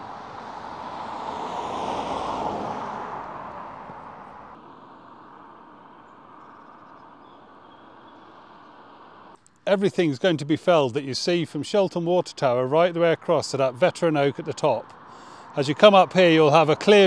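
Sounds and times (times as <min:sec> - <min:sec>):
car passing by: 0:00.0 - 0:09.4.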